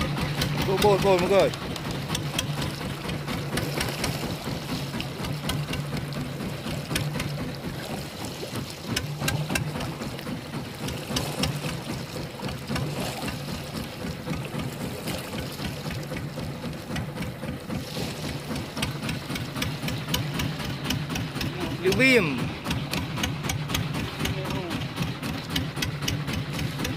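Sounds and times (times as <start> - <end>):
boat engine humming: 0.0 - 26.9
irregular clicks and knocks: 8.9 - 10.3.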